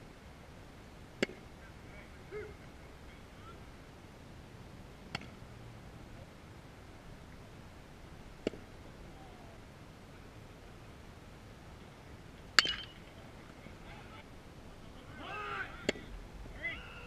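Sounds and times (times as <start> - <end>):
baseball popping into mitt: 1.2 - 1.4, 5.1 - 5.4, 8.4 - 8.7.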